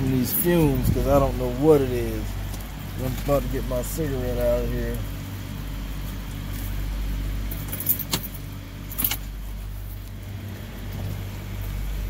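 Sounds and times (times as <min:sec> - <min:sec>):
vehicle low hum: 0:00.0 - 0:12.0
small metal items jingling: 0:07.5 - 0:09.3.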